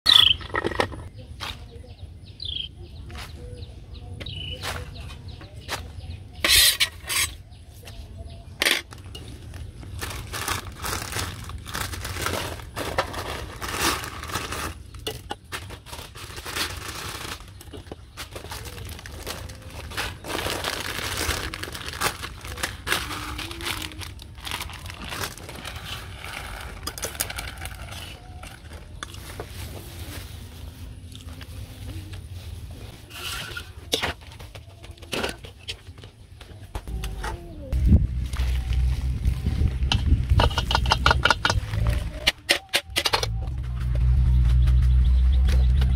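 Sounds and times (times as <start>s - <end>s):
plastic packet crinkling: 8.9s - 29.4s.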